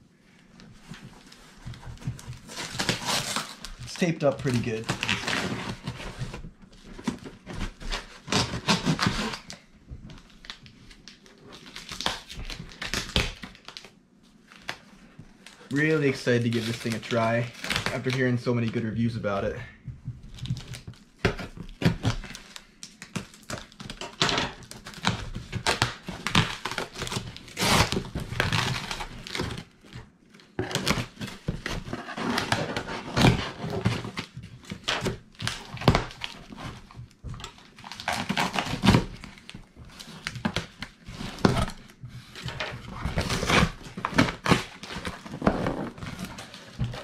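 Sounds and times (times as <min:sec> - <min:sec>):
packing tape tearing: 0:02.4 - 0:06.0, 0:07.0 - 0:09.6, 0:21.3 - 0:29.7, 0:30.4 - 0:47.0
cardboard flaps scraping: 0:30.6 - 0:47.0.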